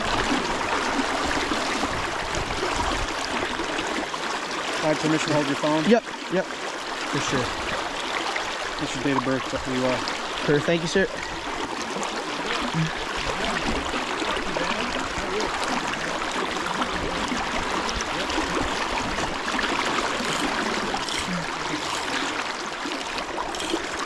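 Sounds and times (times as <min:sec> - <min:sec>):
river water rushing: 0:00.0 - 0:24.0.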